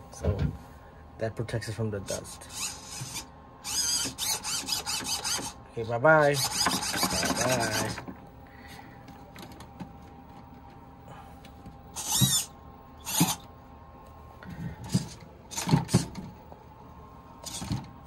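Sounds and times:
servos whirring: 2.1 - 5.6, 6.2 - 8.1, 11.9 - 13.5, 14.8 - 16.2, 17.4 - 18.0.

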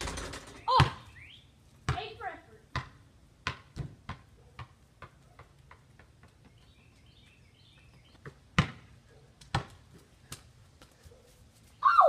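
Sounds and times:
basketball bouncing on concrete: 0.0 - 1.1, 1.9 - 6.6, 8.1 - 11.0
birds chirping faintly: 4.4 - 9.4
loud ball thumps: 8.6 - 8.8.

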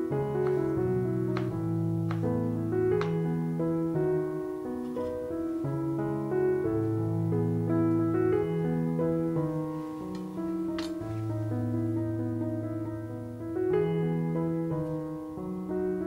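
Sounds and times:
background piano music: 0.0 - 16.0.

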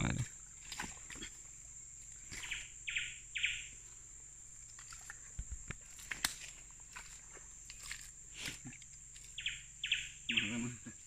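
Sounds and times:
high insect drone: 0.0 - 11.0
short bird calls: 2.4 - 3.7, 9.4 - 11.0.

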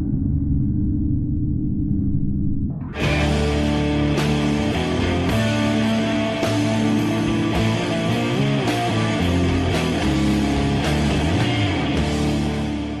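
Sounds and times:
psychedelic rock music: 2.8 - 13.0.

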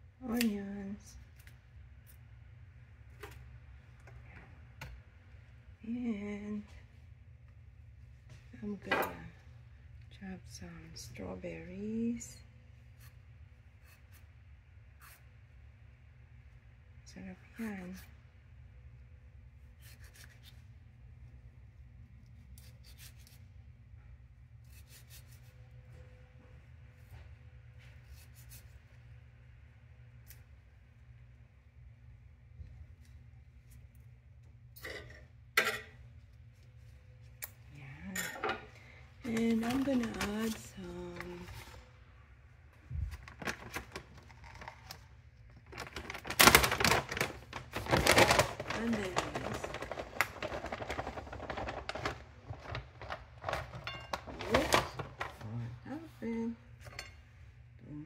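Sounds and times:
faint low hum: 0.0 - 58.0
bag crinkling: 45.6 - 55.4.

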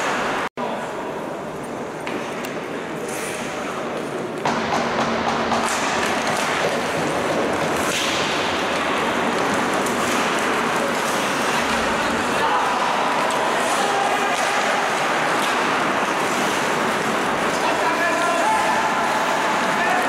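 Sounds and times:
hockey sticks and puck clacking: 0.0 - 0.5, 1.9 - 20.0
skates scraping on ice: 5.6 - 20.0.

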